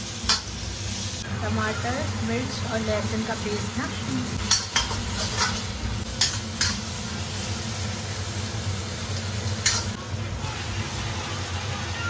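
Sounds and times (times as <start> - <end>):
food sizzling in a pan: 0.0 - 12.0
metal spatula clinking on pan: 4.5 - 5.6, 9.6 - 10.0
spatula stirring and scraping: 4.5 - 6.8.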